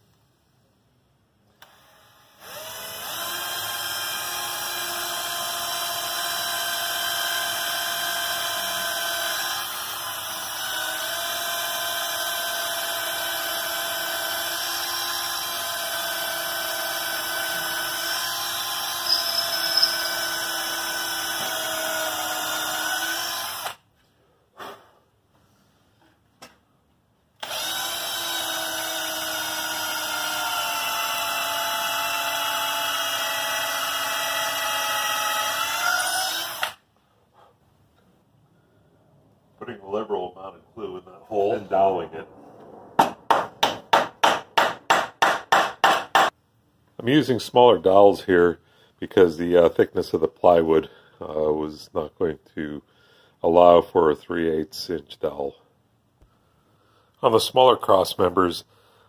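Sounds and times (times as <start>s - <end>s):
cordless drill boring into wood: 1.6s - 23.8s, 27.4s - 36.8s.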